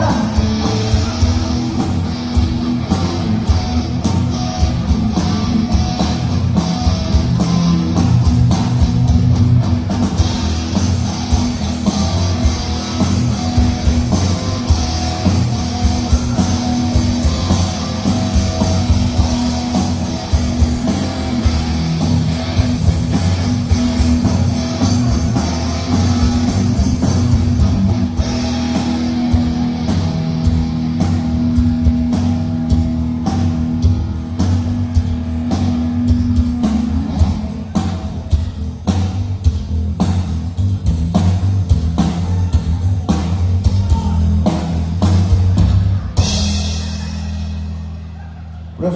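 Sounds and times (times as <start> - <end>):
bass guitar: 0.0 - 48.9
drum kit: 0.0 - 48.9
electric guitar: 0.0 - 48.9.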